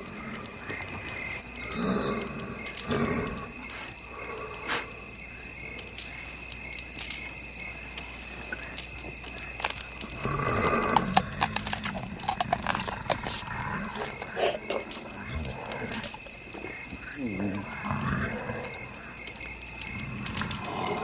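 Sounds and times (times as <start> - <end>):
crickets chirping: 0.0 - 21.0
low growl: 17.2 - 18.9, 19.8 - 21.0.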